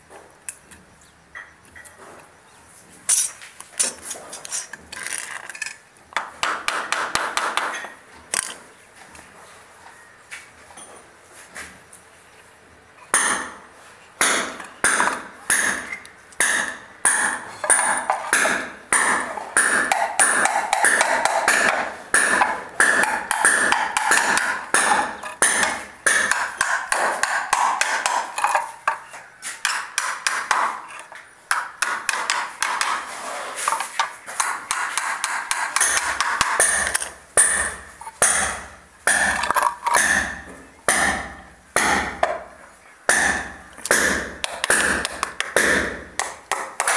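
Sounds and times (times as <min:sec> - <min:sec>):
pliers tapping nails into wood: 0:14.9 - 0:29.0, 0:43.1 - 0:46.9.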